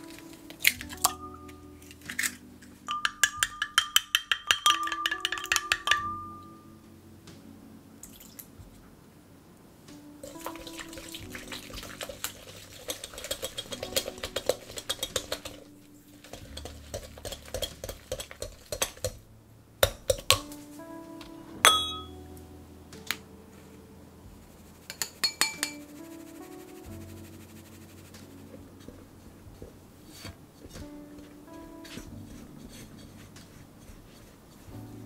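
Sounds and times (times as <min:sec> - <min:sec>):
soft background music: 0:00.0 - 0:35.0
glass clink: 0:02.9 - 0:06.6, 0:21.6 - 0:22.2, 0:25.0 - 0:25.8
utensil beating in glass bowl: 0:02.9 - 0:06.6, 0:10.2 - 0:19.2, 0:24.9 - 0:25.9.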